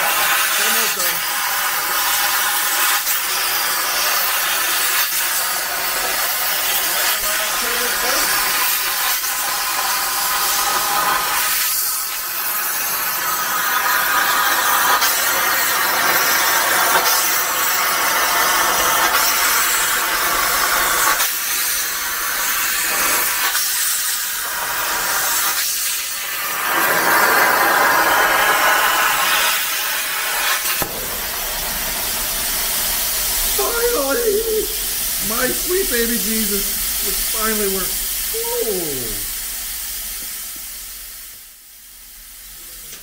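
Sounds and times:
plasma cutter hissing: 0.0 - 43.0.

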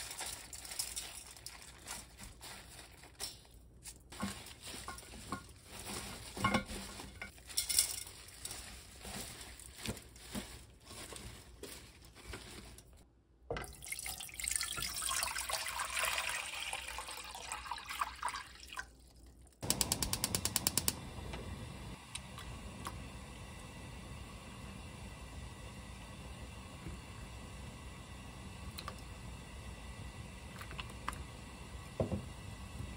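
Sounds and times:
greens rustling in a steel bowl: 0.0 - 13.0
water poured into a pot: 13.6 - 19.6, 30.4 - 31.3
rapid clicks: 19.6 - 21.0.

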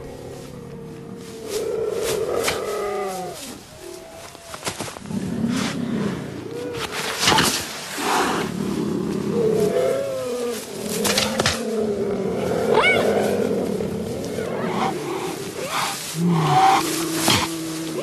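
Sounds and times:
cheetahs growling: 0.0 - 18.0.

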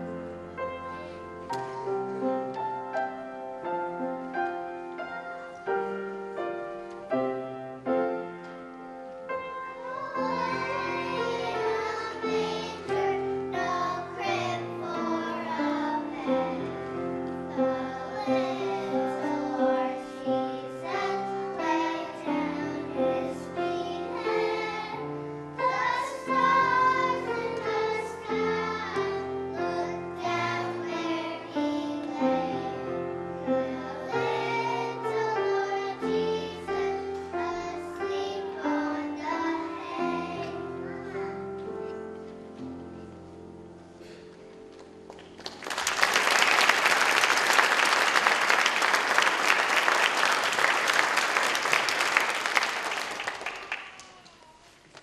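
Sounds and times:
piano accompaniment: 0.0 - 53.6
children singing: 9.7 - 41.4.

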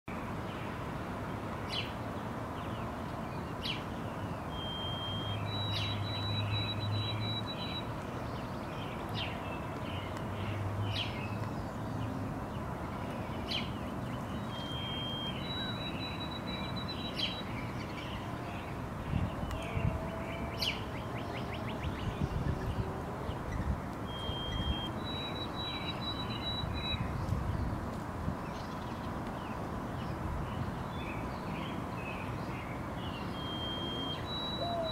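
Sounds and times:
sparrow whistling song: 4.5 - 7.9, 13.5 - 18.1, 23.5 - 27.2, 33.2 - 34.9.

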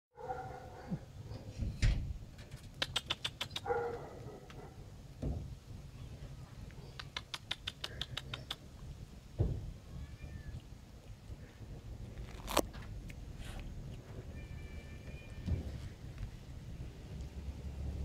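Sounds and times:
dull thumps: 5.2 - 5.6, 9.3 - 9.8
kittens crunching dry food: 6.6 - 8.8, 10.4 - 14.4
kitten meowing: 9.9 - 10.6.

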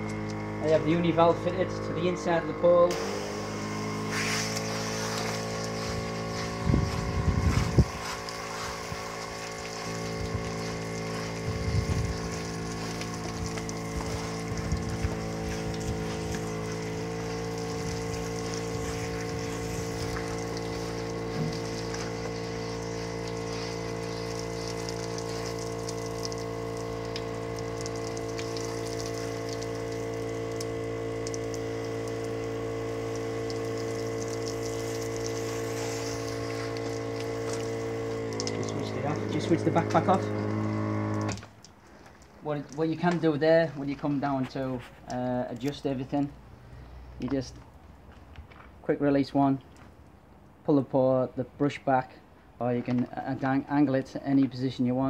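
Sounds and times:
electric pump humming: 0.0 - 44.5
water spray hiss: 2.9 - 41.4.

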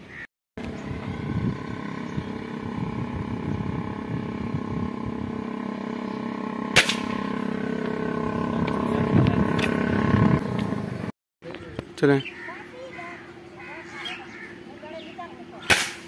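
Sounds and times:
steady background hum: 0.0 - 16.0
air rifle shot: 6.7 - 7.2, 15.6 - 16.0.

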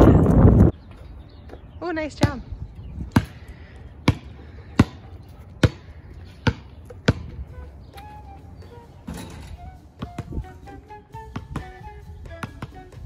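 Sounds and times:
basketball bouncing on concrete: 3.1 - 7.5, 10.0 - 10.5, 11.3 - 13.0.

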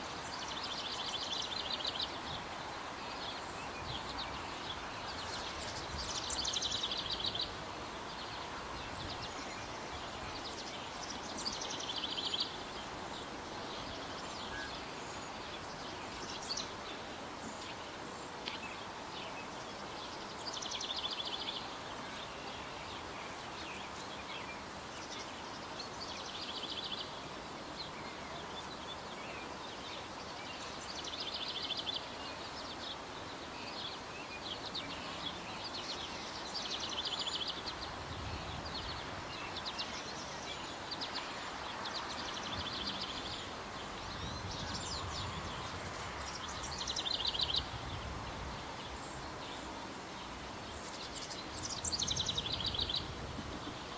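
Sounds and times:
steady outdoor hiss: 0.0 - 53.9.

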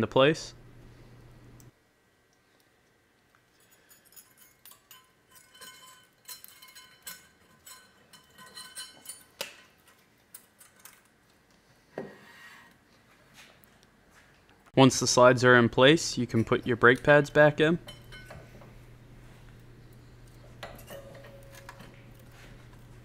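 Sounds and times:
metal clips clicking and scraping: 3.6 - 11.1, 20.2 - 22.9.

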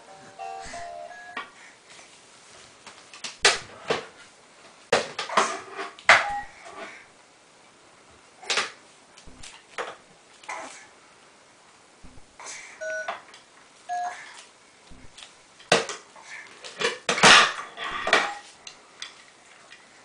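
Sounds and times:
plastic toys knocking and clattering: 4.9 - 6.4, 15.6 - 18.4.

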